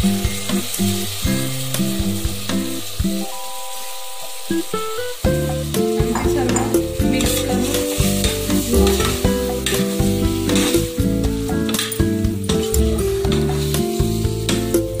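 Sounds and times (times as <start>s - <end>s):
background music: 0.0s - 15.0s
rice sizzling in oil: 0.0s - 15.0s.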